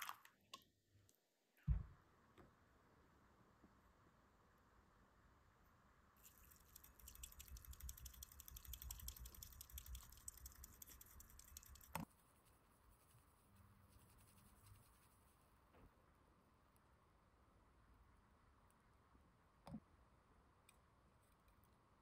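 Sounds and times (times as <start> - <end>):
bamboo whisk scratching in bowl: 6.2 - 15.3.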